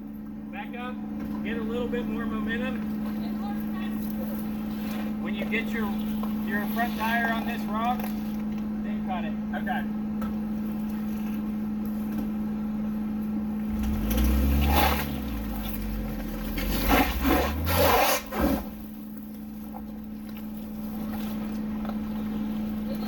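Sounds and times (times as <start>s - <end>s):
off-road vehicle engine revving: 0.0s - 23.0s
underbody scraping over rock: 3.9s - 8.5s.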